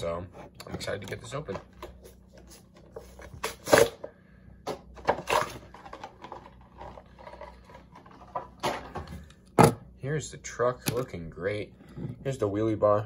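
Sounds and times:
plastic packaging crinkling: 0:05.0 - 0:09.0.

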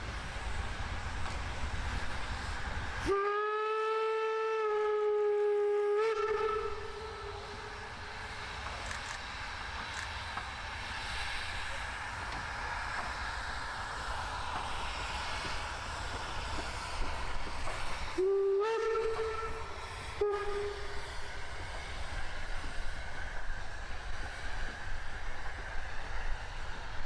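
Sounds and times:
train rumbling: 0:00.0 - 0:27.0
steam whistle blast: 0:03.0 - 0:07.8, 0:18.2 - 0:21.0.

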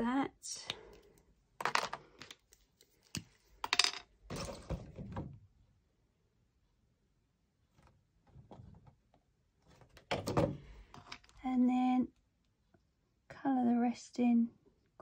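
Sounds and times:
plastic pens clicking and clattering: 0:00.7 - 0:04.1.

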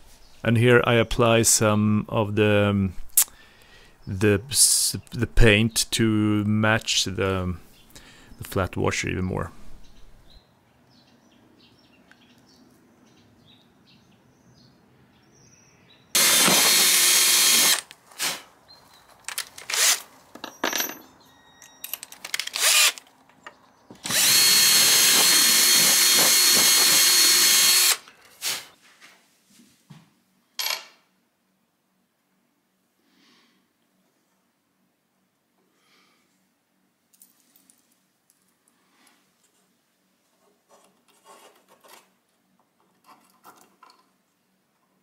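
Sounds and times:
power drill boring into wood: 0:16.2 - 0:17.9, 0:19.6 - 0:20.0, 0:22.5 - 0:23.0, 0:24.0 - 0:28.1.

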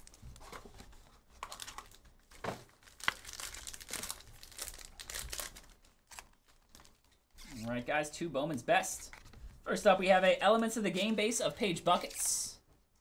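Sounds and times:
plastic wrapping crinkling: 0:00.0 - 0:07.4.

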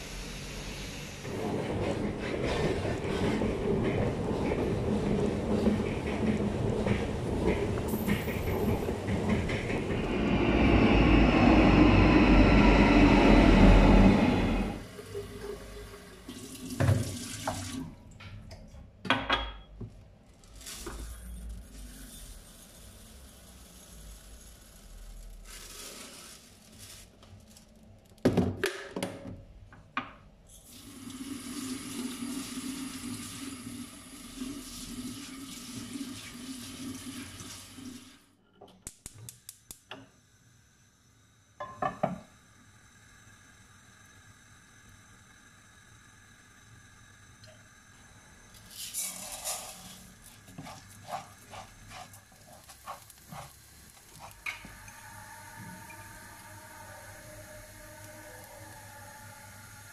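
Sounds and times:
kitchen tap running: 0:15.0 - 0:18.2
glass and cookware clinking: 0:41.6 - 0:42.2.

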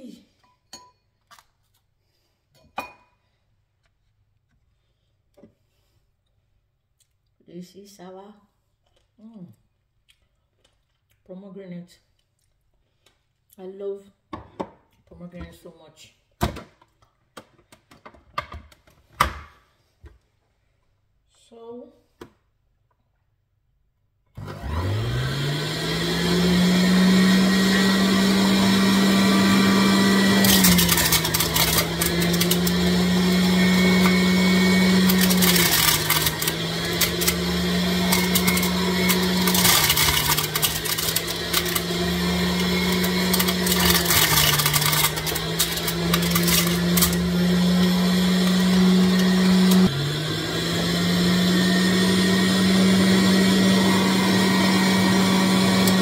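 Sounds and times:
juicer motor whine: 0:24.4 - 0:56.0
fruit crackling being shredded: 0:25.4 - 0:56.0.

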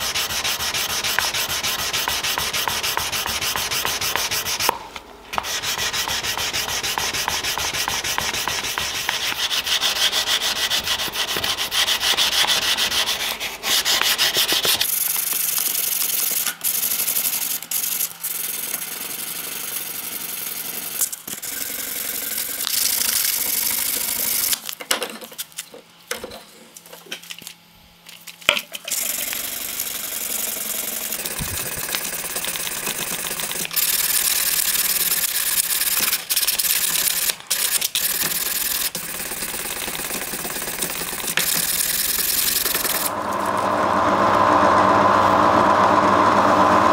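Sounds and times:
sandpaper rasping on metal: 0:00.0 - 0:04.7, 0:05.4 - 0:18.8.

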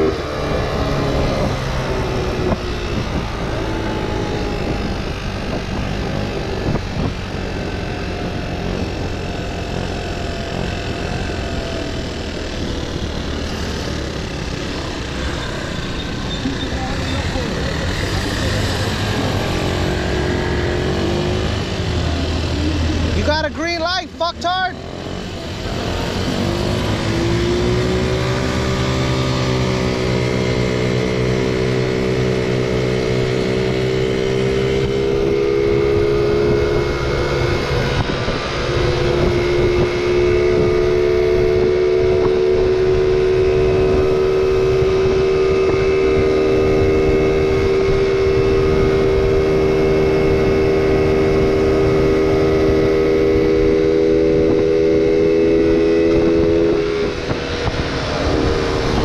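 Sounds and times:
motor scooter engine running: 0:00.0 - 0:59.0.

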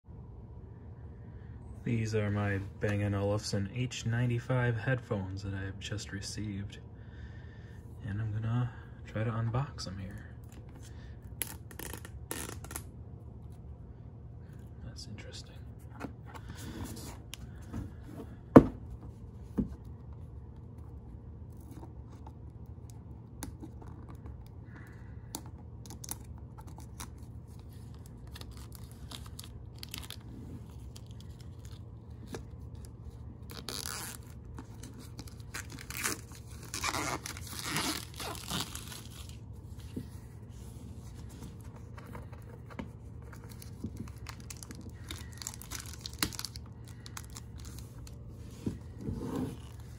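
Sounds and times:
steady low hum: 0:00.1 - 0:49.9
plastic wrap crinkling: 0:25.9 - 0:39.6, 0:41.8 - 0:48.9.

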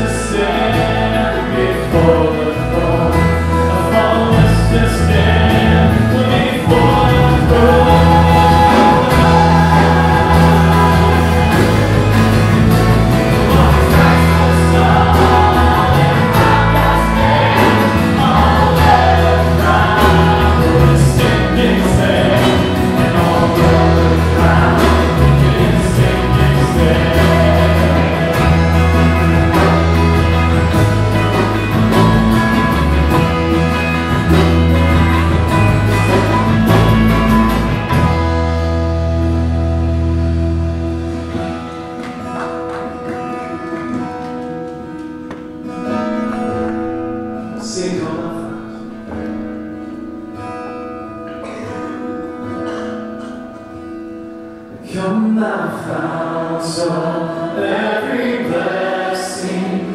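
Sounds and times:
choir singing a hymn: 0:00.0 - 0:37.0, 0:54.8 - 0:59.9
bass line: 0:00.0 - 0:44.3
worship band playing: 0:00.0 - 0:59.9.

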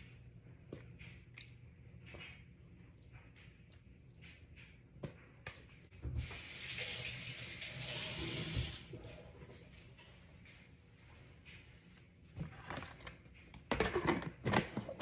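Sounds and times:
kitchen tap running: 0:06.0 - 0:09.0.

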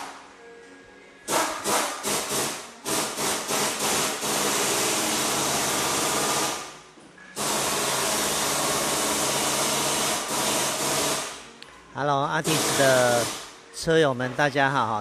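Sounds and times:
power tool running: 0:01.3 - 0:06.7, 0:07.4 - 0:11.4, 0:12.4 - 0:13.5.

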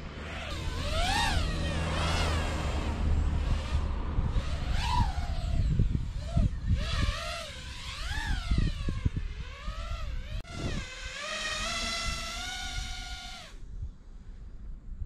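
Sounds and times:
low rumble: 0:00.0 - 0:10.8
drone motors whining: 0:00.0 - 0:13.6.

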